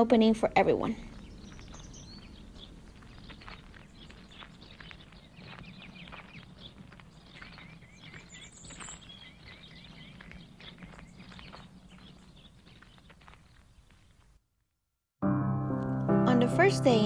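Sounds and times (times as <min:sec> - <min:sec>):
birds chirping: 0:00.0 - 0:14.4
footsteps: 0:01.0 - 0:14.4.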